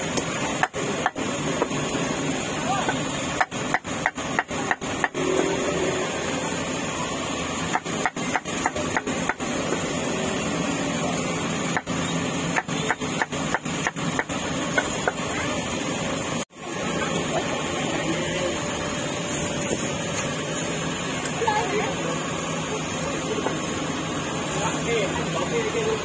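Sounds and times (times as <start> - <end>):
heavy rain hissing: 0.0 - 12.8, 15.4 - 26.0
cleaver chopping meat: 2.9 - 5.3, 7.7 - 9.8, 11.7 - 15.2.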